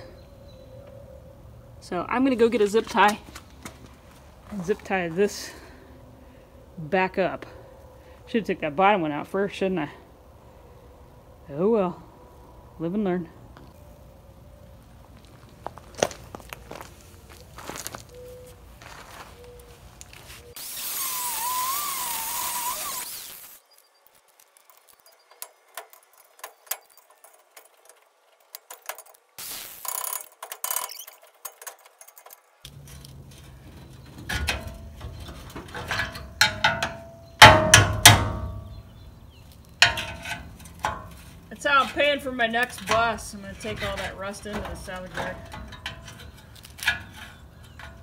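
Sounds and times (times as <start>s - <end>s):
loud wavering hiss: 20.6s - 23.6s
hand tools clanking on bolts: 24.7s - 38.8s, 39.6s - 48.0s.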